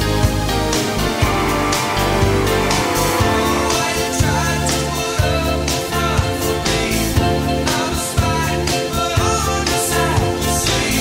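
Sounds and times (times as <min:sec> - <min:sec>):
pop-rock music: 0:00.0 - 0:11.0
bass line: 0:00.4 - 0:07.6.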